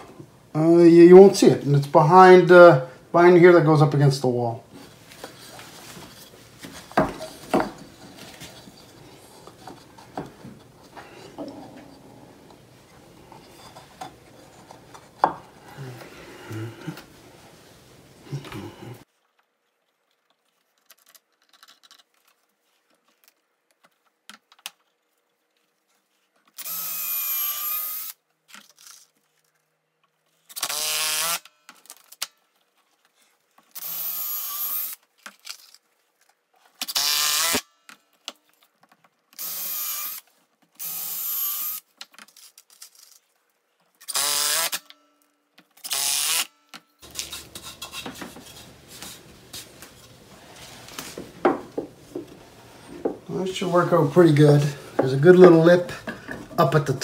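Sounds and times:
power drill drilling into wood: 26.6 - 28.2, 30.6 - 31.5, 33.8 - 35.0, 36.9 - 37.7, 39.4 - 40.2, 40.8 - 41.8, 44.1 - 44.9, 45.9 - 46.5.

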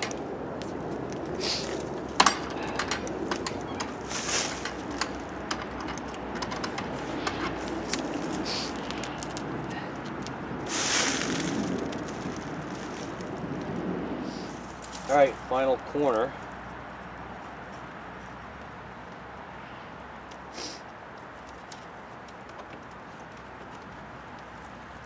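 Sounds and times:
tape clicks taps and rustles: 0.0 - 10.5, 20.2 - 25.0
short hissing bursts: 20.5 - 20.8.

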